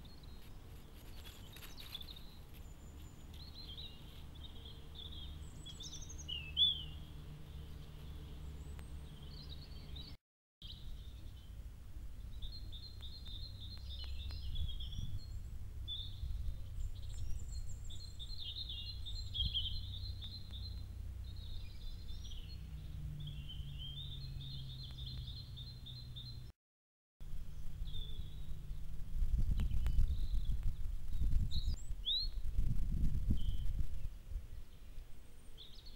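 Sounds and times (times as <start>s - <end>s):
songbirds chirping and trilling: 0.0s - 26.5s, 27.3s - 35.9s.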